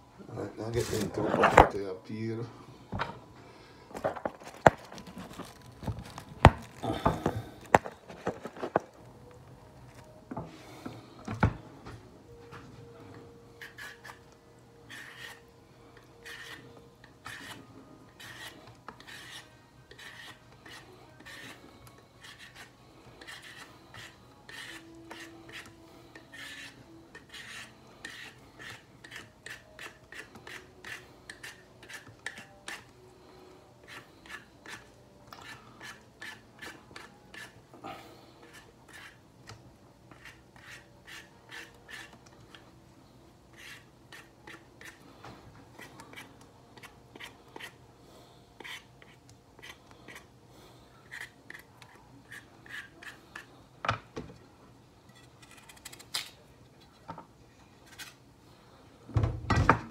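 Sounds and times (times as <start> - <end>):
knife scraping vegetable skin: 13.6 - 14.3, 14.9 - 33.0, 33.8 - 37.6, 38.4 - 39.2, 40.1 - 42.3, 43.5 - 45.0, 45.8 - 47.8, 48.6 - 50.3, 51.0 - 53.5.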